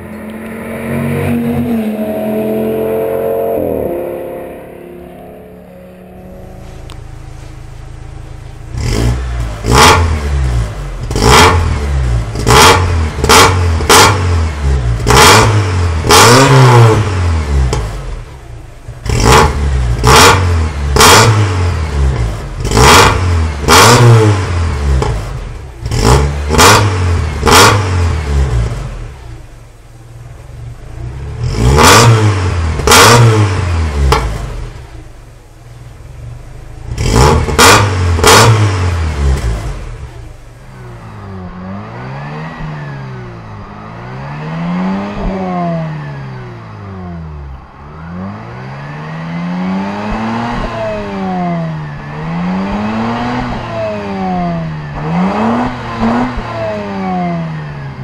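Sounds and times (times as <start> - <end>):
car engine throttle blips: 0.0 - 58.0
car engine idling: 4.6 - 44.5.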